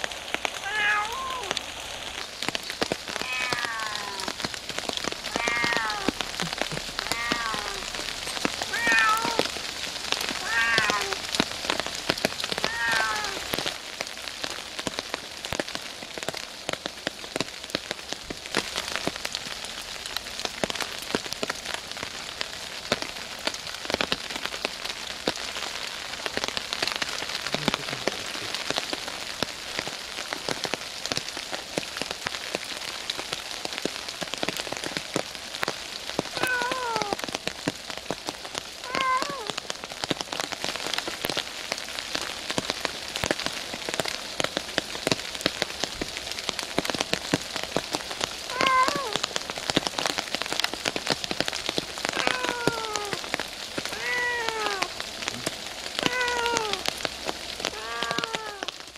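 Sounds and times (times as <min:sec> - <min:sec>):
heavy rain on leaves: 0:00.0 - 0:58.9
cat meowing: 0:00.6 - 0:01.6, 0:03.1 - 0:04.4, 0:05.2 - 0:09.5, 0:10.4 - 0:11.3, 0:12.5 - 0:13.5, 0:36.4 - 0:37.2, 0:38.8 - 0:39.6, 0:48.5 - 0:49.2, 0:52.0 - 0:53.3, 0:53.9 - 0:55.0, 0:56.0 - 0:56.9, 0:57.7 - 0:58.8.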